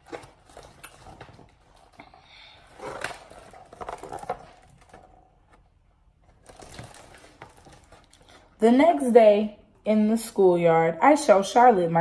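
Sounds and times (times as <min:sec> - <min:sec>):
paper page rustling: 0:02.8 - 0:08.4.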